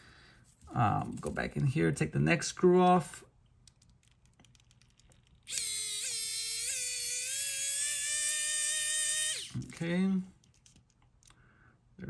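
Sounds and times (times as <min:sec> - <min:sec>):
electric screwdriver motor whining: 0:05.5 - 0:09.6.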